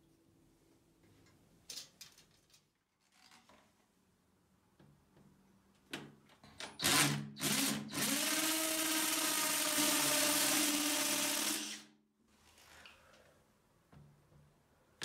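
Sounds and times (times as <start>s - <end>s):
power drill drilling into brick: 6.8s - 11.9s.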